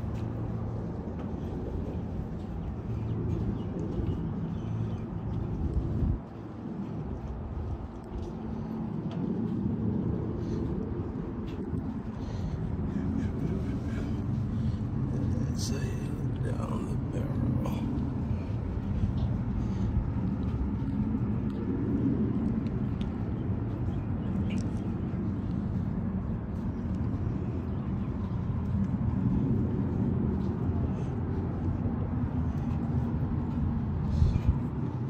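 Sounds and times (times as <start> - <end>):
wind buffeting microphone: 0.0 - 35.0.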